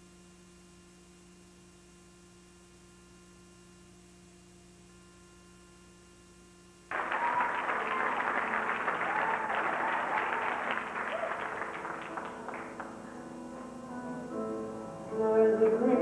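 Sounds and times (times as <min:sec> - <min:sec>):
faint steady hum: 0:00.0 - 0:16.0
audience applause: 0:06.9 - 0:13.8.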